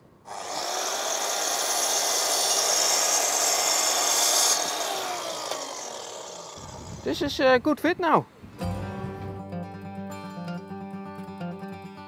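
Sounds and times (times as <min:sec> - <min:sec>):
mitre saw cutting wood: 0:00.3 - 0:07.1.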